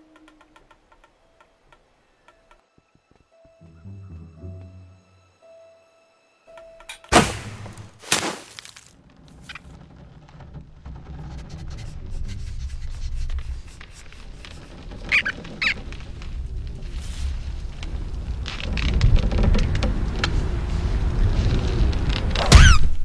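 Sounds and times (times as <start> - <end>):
short high squeaks: 14.3 - 15.9
low rumbling noise: 14.7 - 23.0.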